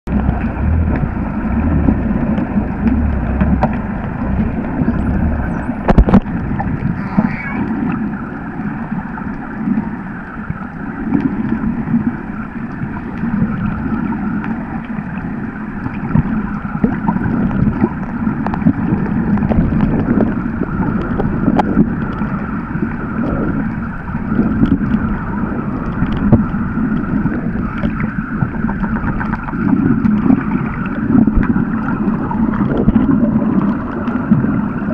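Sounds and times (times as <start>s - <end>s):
muffled underwater rush of water: 0.0s - 34.9s
sharp underwater clicks: 0.1s - 7.8s.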